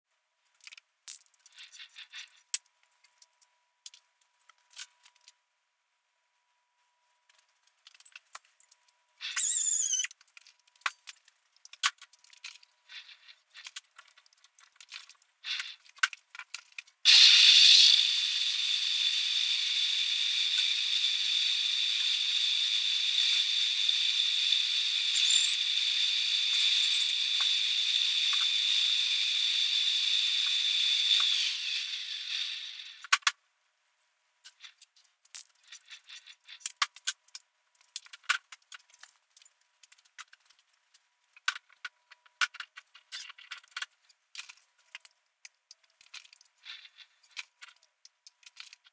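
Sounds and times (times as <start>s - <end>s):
high-pitched cutting squeal: 9.2s - 10.1s, 17.1s - 33.1s
metal lathe machining: 17.1s - 33.0s.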